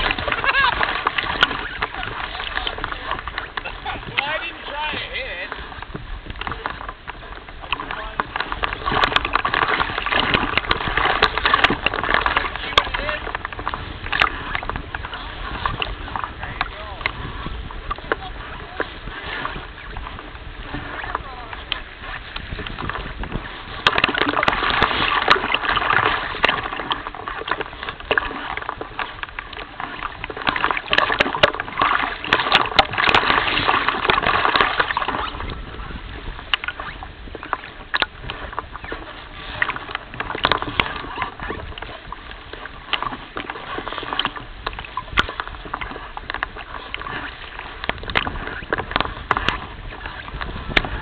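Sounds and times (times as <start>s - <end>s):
small waves lapping and splashing: 0.0s - 51.0s
wind on microphone: 0.0s - 51.0s.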